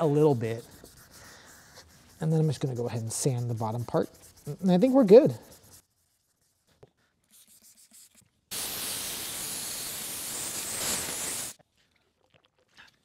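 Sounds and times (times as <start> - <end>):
compressed air blow gun hissing: 8.5 - 11.6.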